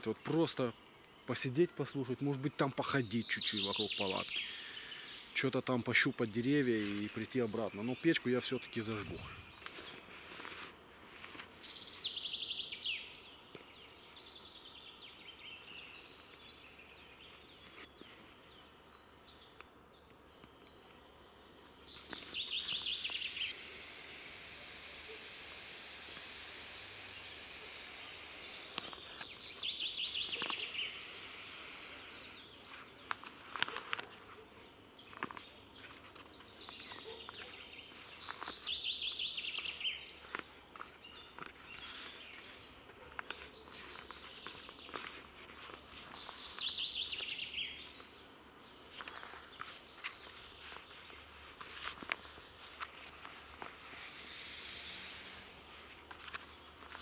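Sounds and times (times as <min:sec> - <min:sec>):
songbird trilled calls: 0:22.0 - 0:32.5.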